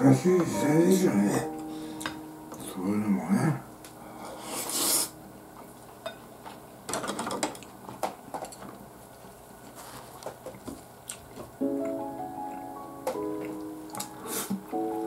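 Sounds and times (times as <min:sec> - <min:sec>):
breathy rush of noise: 0:03.9 - 0:05.3.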